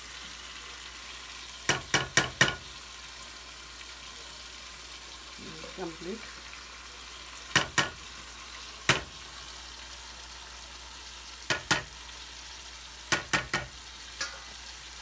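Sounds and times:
meat sizzling in a frying pan: 0.0s - 15.0s
utensils knocking against pans: 1.7s - 2.7s, 7.5s - 8.0s, 11.5s - 12.0s, 13.1s - 14.5s.

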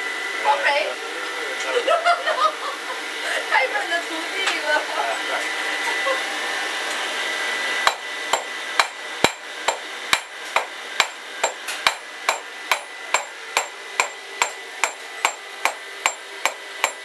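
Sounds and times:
hammer striking iron on anvil: 7.8s - 17.0s.

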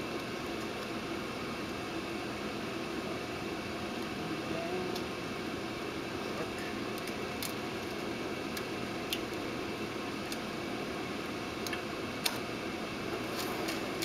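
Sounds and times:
fan hum: 0.0s - 14.0s.

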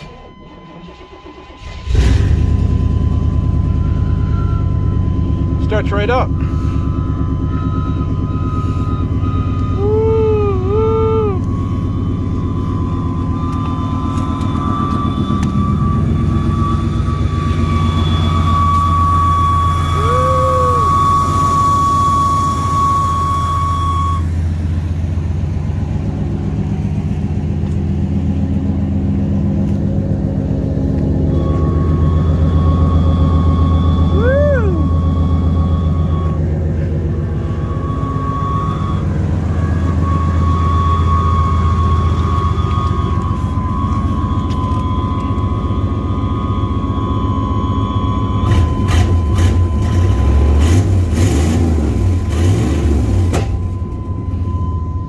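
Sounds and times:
truck engine idling: 0.0s - 55.0s
thin high whine: 5.6s - 24.7s.

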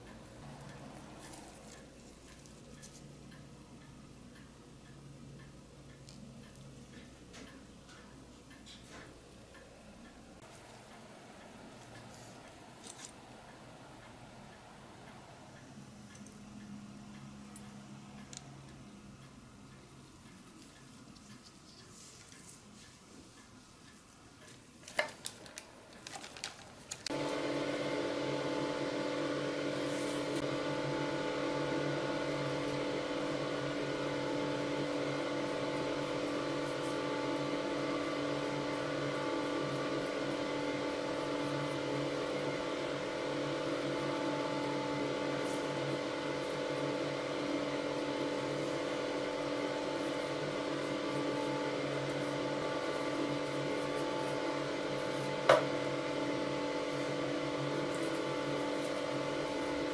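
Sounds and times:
electric machine humming: 0.0s - 3.7s, 27.0s - 59.9s.

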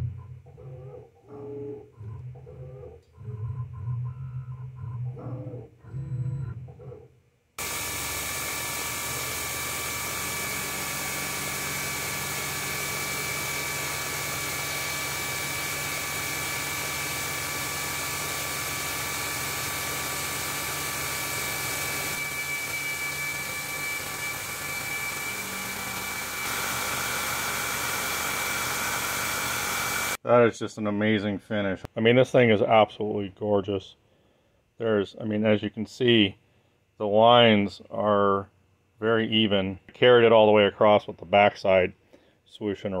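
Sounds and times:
milling machine spindle whirring: 7.6s - 30.2s.

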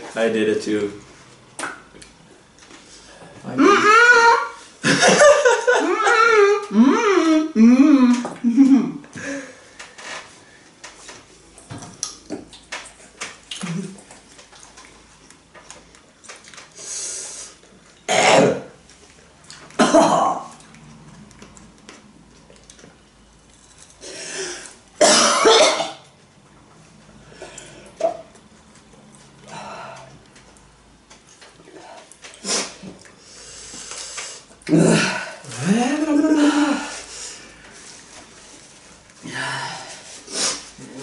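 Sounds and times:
people coughing: 19.8s - 20.4s, 25.0s - 26.0s.

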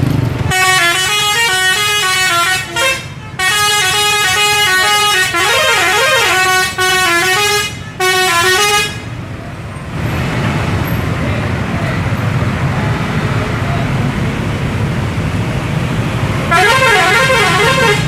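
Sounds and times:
musical bus air horn: 0.4s - 9.2s, 16.4s - 18.0s.

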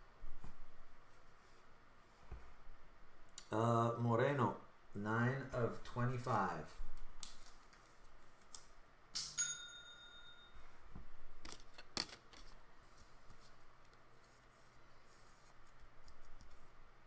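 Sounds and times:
bell-like ding: 9.2s - 10.6s.

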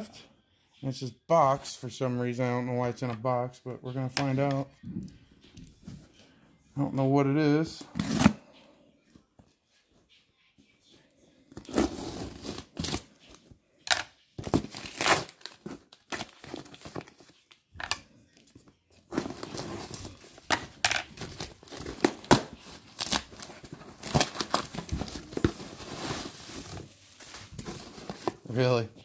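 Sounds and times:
packing material tearing and crinkling: 14.5s - 17.2s, 21.1s - 28.3s.

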